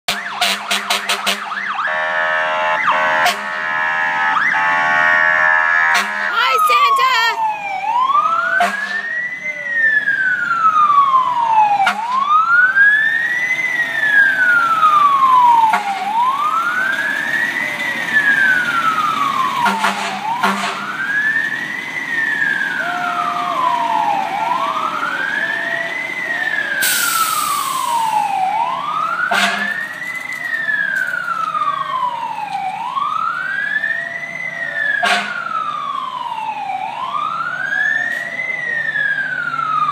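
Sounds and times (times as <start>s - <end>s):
fire engine siren wailing: 0.1s - 39.9s
burst of hiss: 26.8s - 28.1s.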